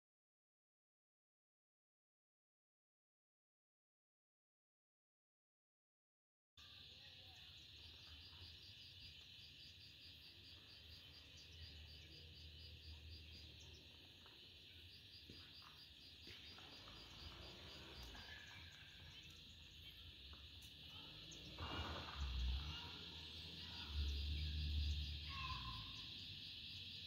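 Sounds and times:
insect chirping: 6.6 - 27.0
insects trilling: 6.6 - 27.0.

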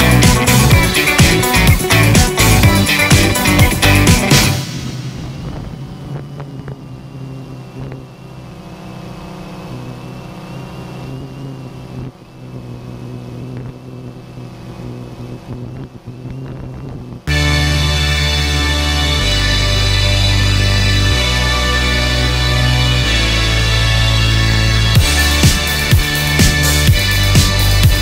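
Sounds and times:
music: 0.0 - 6.0, 17.3 - 28.0
drone propellers whirring: 0.0 - 28.0.

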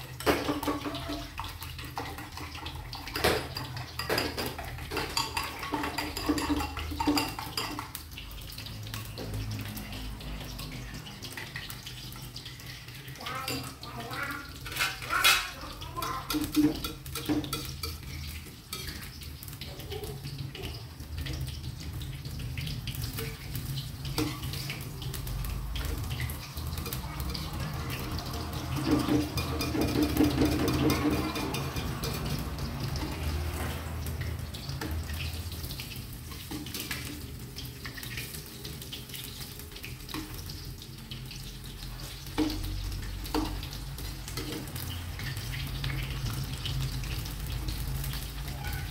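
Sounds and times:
food sizzling in wok: 0.0 - 48.9
metal spatula scraping wok: 14.6 - 19.2, 26.2 - 34.9.

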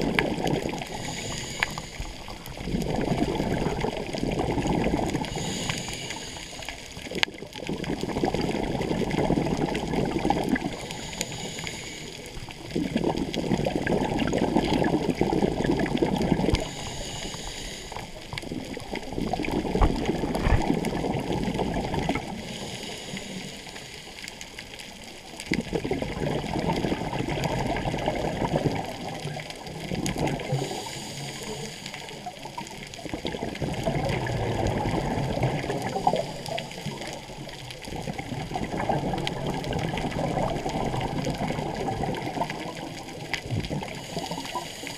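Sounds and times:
exhaled bubbles rushing: 0.0 - 11.4, 12.2 - 17.0, 18.0 - 22.6, 24.9 - 44.9
regulator inhale hiss: 0.8 - 2.6, 5.2 - 7.2, 10.6 - 12.7, 16.3 - 19.1, 22.2 - 24.6, 30.4 - 32.6, 35.6 - 37.2, 43.8 - 44.9.

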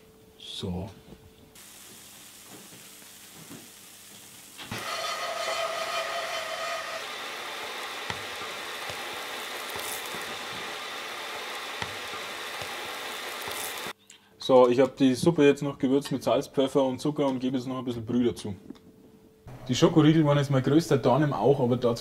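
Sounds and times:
bread sizzling in butter: 1.6 - 14.0.

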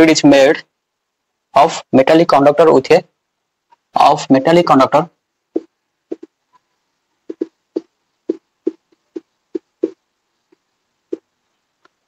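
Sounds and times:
marker squeaking on whiteboard: 5.5 - 11.3.

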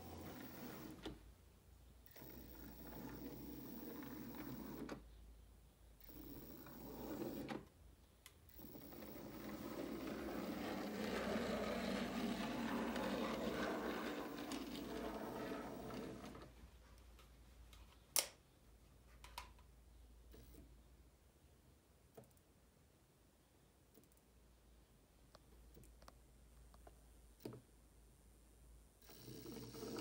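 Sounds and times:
model train motor whirring: 8.5 - 16.4.

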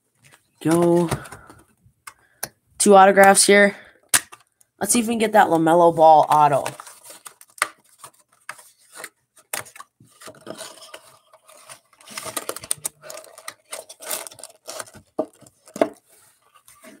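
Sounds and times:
cardboard scraping and rustling: 6.7 - 17.0.

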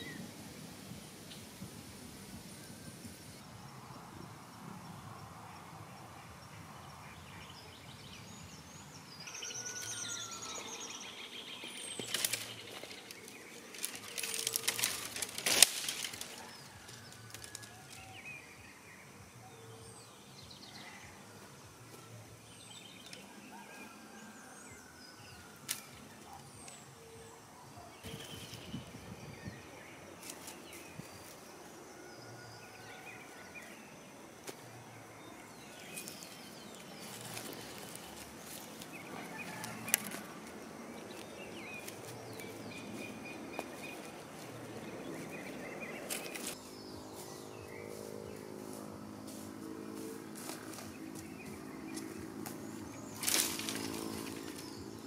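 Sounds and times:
birds chirping: 4.2 - 55.0.

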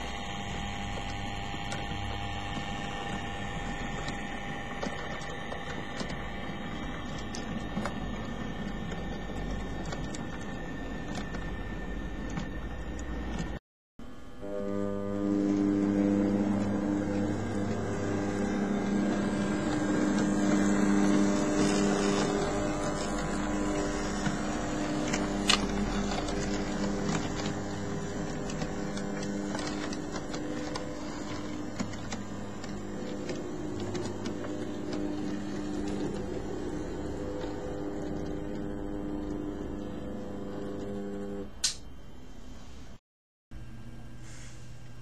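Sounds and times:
wheels clicking on track: 0.0 - 13.6, 15.5 - 41.0
model train locomotive drone: 0.0 - 41.8
sharp click: 41.6 - 41.9.

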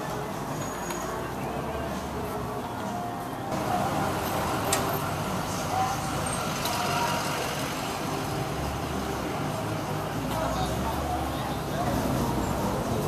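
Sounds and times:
indistinct voices: 0.0 - 13.0.

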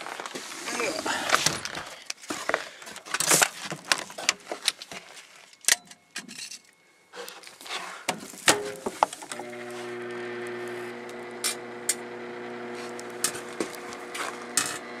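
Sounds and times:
aluminium foil crinkling: 12.7 - 14.7.

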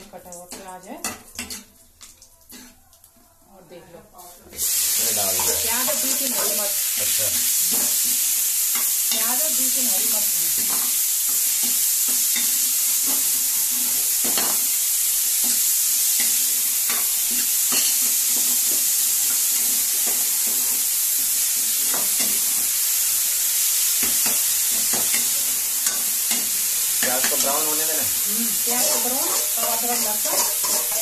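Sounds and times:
onion sizzling in hot oil: 0.0 - 3.2, 4.2 - 31.0
metal ladle scraping and stirring: 28.8 - 31.0.

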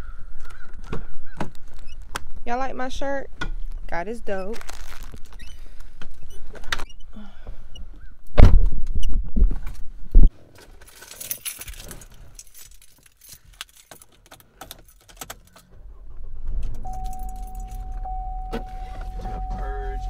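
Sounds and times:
rumbling handling noise: 3.3 - 20.0
car door shutting: 15.7 - 20.0.

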